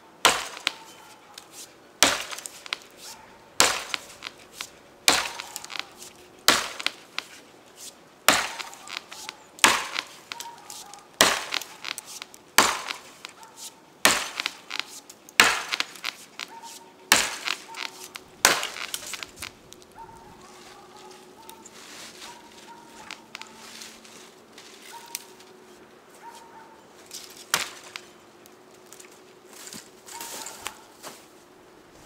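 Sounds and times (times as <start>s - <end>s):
axe chopping wood: 0.2s - 0.9s, 1.6s - 7.4s, 8.3s - 13.4s, 14.0s - 16.0s, 17.1s - 19.2s, 27.4s - 28.0s.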